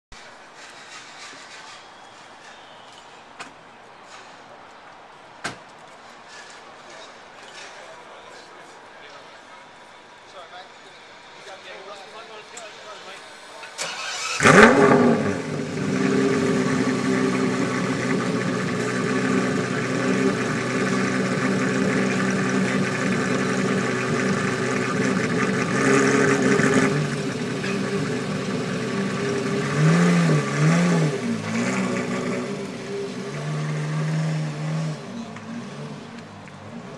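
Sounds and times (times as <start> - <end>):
car engine starting and idling: 13.5 - 36.9
engine revving: 13.8 - 36.9.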